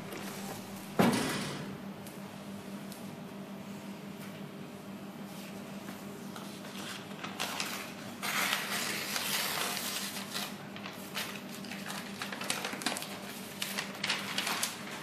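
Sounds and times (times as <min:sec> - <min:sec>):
steady low hum: 0:00.0 - 0:15.0
paper crinkling and rustling: 0:06.3 - 0:15.0.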